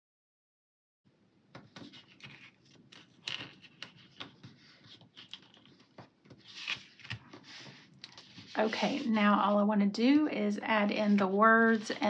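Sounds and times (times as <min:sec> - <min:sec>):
paper rustling: 0:01.6 - 0:09.2, 0:11.0 - 0:12.0
paper brushing rub: 0:06.4 - 0:09.1, 0:11.0 - 0:12.0.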